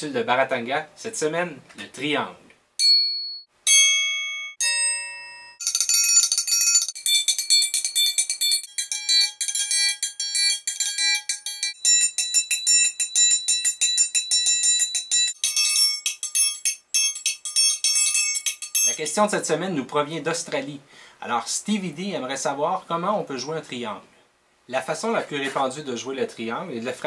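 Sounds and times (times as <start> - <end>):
triangle strikes: 2.8 - 19.0.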